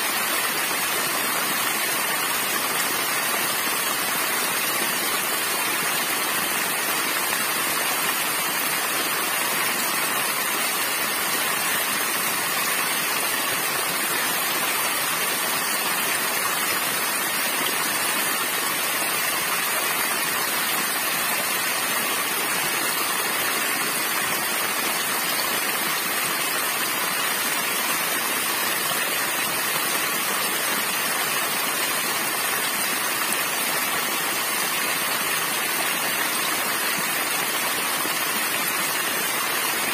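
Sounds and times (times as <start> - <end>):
waterfall splashing: 0.0 - 39.9.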